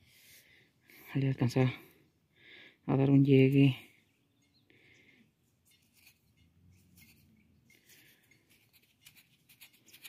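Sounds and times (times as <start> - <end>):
faint scratching and rubbing: 5.5 - 10.0.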